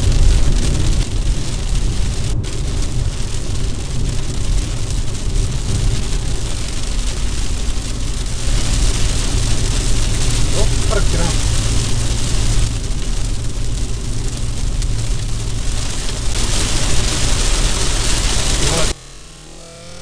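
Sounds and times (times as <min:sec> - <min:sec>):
rain hissing on windshield: 0:00.0 - 0:20.0
tyres and engine rumbling: 0:00.0 - 0:20.0.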